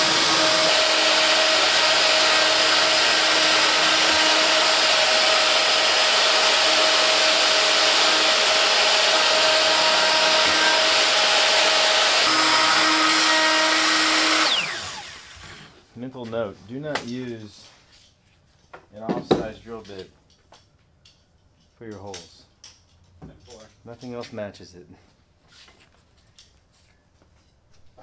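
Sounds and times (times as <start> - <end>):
motor spinning down: 0.0 - 15.7
router cutting wood: 0.0 - 15.7.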